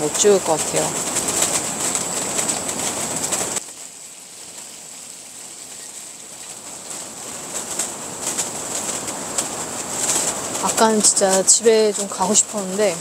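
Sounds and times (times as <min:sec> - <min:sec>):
tent fluttering: 0:00.0 - 0:13.0
wind buffeting tent: 0:00.0 - 0:13.0.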